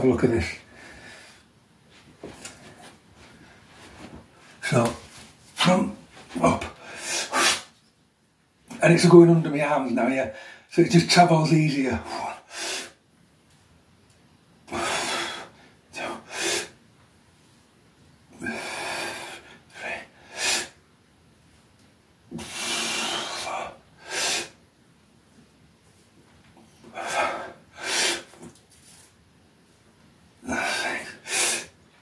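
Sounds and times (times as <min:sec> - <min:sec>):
man breathing hard: 0:14.7 - 0:16.8, 0:18.4 - 0:20.8, 0:22.3 - 0:24.6, 0:26.9 - 0:28.4, 0:30.4 - 0:31.8.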